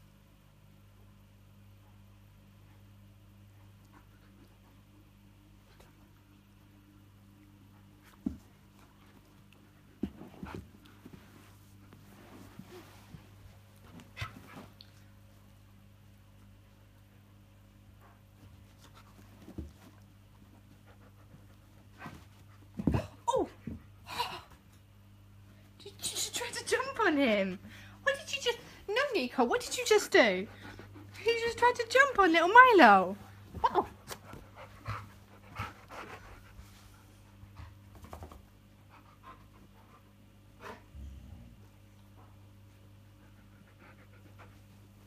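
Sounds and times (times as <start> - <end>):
dog panting and huffing: 18.0 - 22.7, 28.6 - 32.0, 33.2 - 40.9, 42.2 - 45.0.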